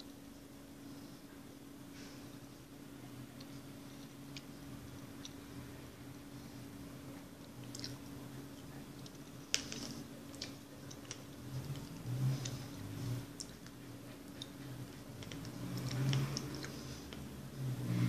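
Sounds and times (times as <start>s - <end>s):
person chewing noodles: 7.4s - 17.3s
mouth clicks and smacks: 7.5s - 8.2s.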